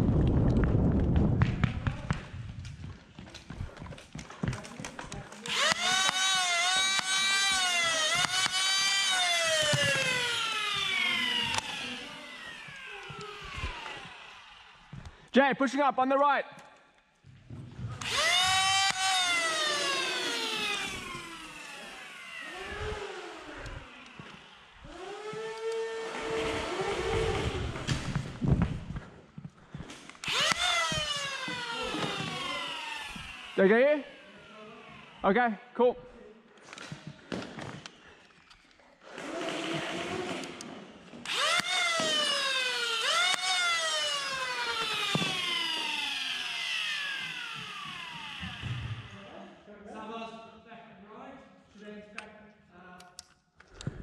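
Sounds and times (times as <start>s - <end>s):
flywheel motors whining: 5.4s - 15.1s, 18.0s - 28.4s, 30.1s - 35.3s, 37.8s - 49.2s
low motor hum: 5.6s - 15.2s, 17.9s - 29.1s
blaster clicks: 30.2s - 30.9s, 41.3s - 43.6s.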